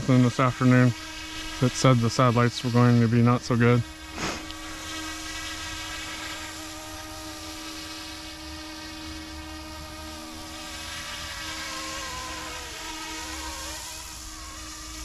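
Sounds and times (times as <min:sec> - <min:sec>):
rc helicopter buzzing whine: 0:00.0 - 0:15.0.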